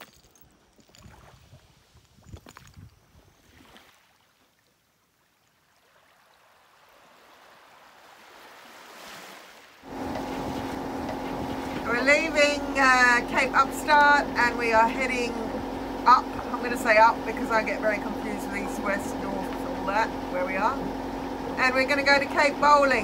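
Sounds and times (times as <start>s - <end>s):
small waves lapping: 3.4s - 23.0s
boat engine running: 9.8s - 23.0s.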